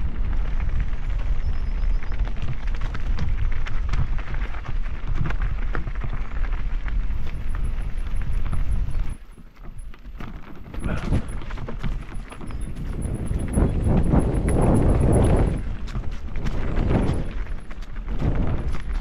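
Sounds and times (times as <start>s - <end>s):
bike rattling over rocks: 0.0s - 19.0s
wind rumbling on microphone: 0.0s - 19.0s.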